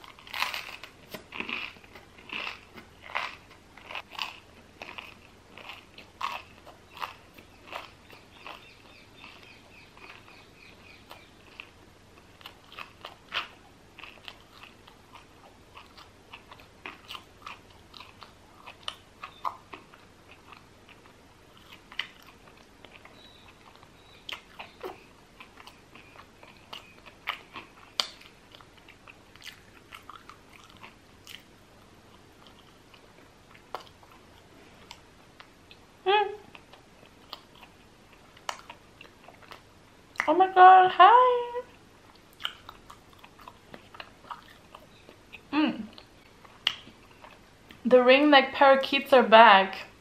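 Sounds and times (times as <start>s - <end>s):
crunchy bites of bread: 0.0s - 10.4s
mouth chewing: 0.0s - 40.4s, 41.7s - 47.8s.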